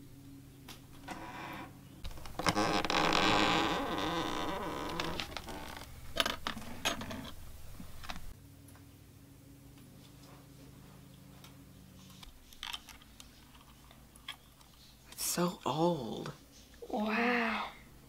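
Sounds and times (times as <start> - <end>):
rustling and scraping of trunk: 1.0 - 8.3.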